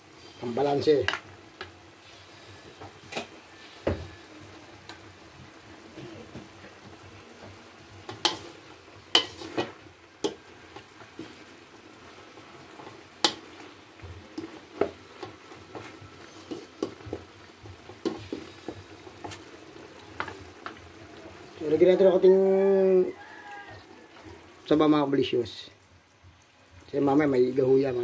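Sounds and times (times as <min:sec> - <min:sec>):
sauce simmering: 0:00.0 - 0:28.0
utensil scraping and knocking wok: 0:06.2 - 0:20.9.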